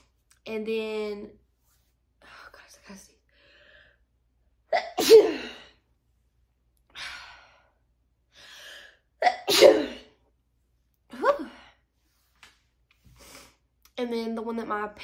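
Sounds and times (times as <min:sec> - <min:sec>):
soft breathing: 0:02.2 - 0:04.2
woman sneezing: 0:04.7 - 0:05.7, 0:09.2 - 0:10.2.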